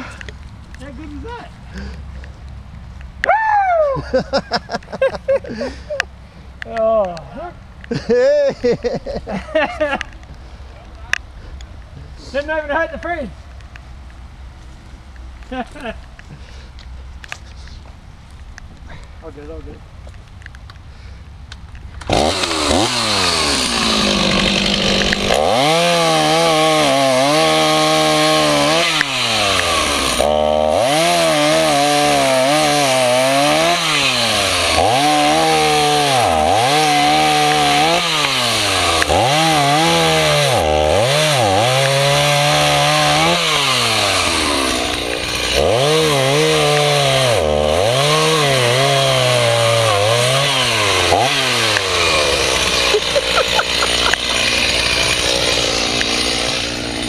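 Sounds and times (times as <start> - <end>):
chainsaw cutting wood: 22.0 - 57.0.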